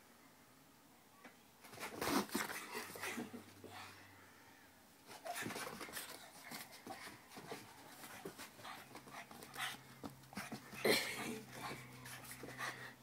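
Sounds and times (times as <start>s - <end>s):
dog panting: 5.1s - 10.8s, 11.4s - 13.0s
small knocks and rustles: 5.1s - 10.9s.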